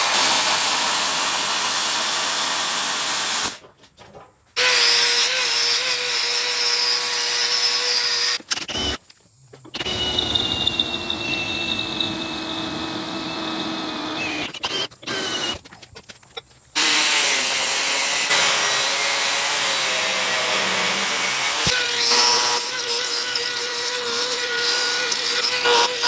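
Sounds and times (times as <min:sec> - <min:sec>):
angle grinder cutting steel: 0:04.6 - 0:09.0, 0:09.8 - 0:15.5, 0:16.8 - 0:26.0
drill bit boring through steel: 0:09.7 - 0:15.6, 0:18.2 - 0:26.0.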